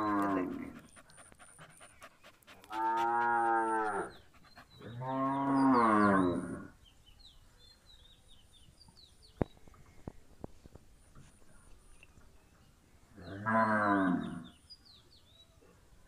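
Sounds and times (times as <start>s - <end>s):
cattle mooing: 2.7s - 4.1s.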